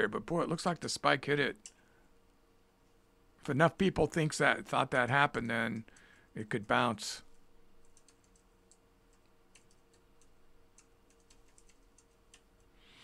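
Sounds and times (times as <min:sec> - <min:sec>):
low steady hum: 0:00.0 - 0:13.0
typing on computer keyboard: 0:07.8 - 0:12.7.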